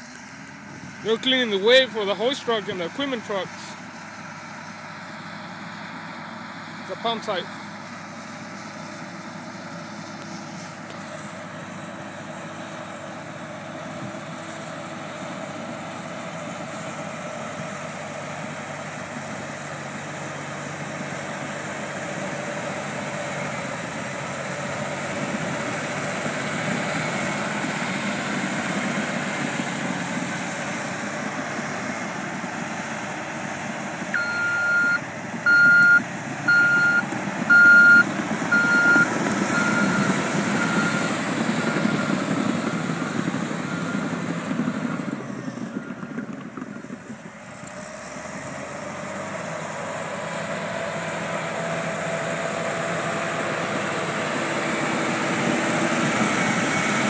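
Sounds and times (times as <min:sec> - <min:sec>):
bulldozer diesel engine: 0:00.0 - 0:57.0
backup alarm beeping: 0:34.2 - 0:41.0.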